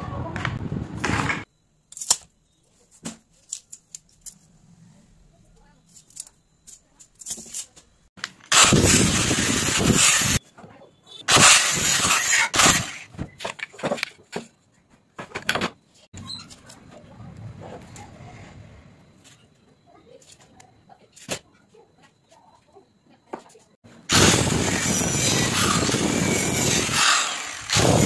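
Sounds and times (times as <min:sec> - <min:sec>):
angle grinder cutting pipe: 0:08.5 - 0:10.4, 0:11.2 - 0:13.1, 0:24.1 - 0:28.0.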